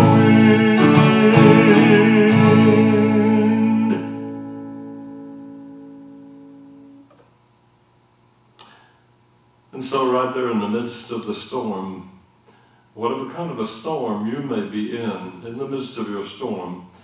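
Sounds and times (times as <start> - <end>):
acoustic guitar strumming: 0.0 - 7.2.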